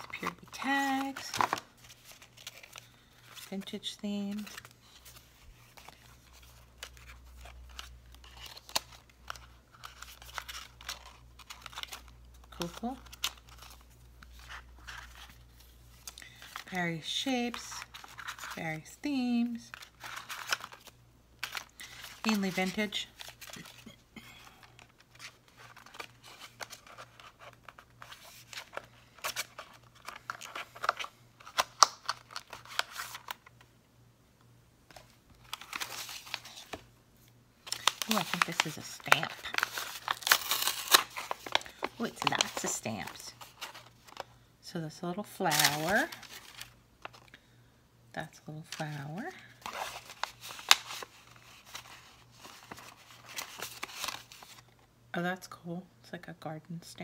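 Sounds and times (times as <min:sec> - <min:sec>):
paper rustling and snapping: 0:00.0 - 0:02.9, 0:37.7 - 0:44.3
plastic bag crinkling: 0:37.6 - 0:44.3.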